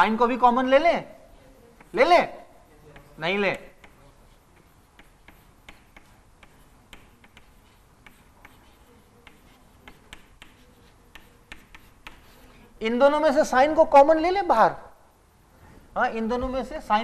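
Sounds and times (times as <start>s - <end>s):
chalk tapping on blackboard: 1.3s - 12.7s.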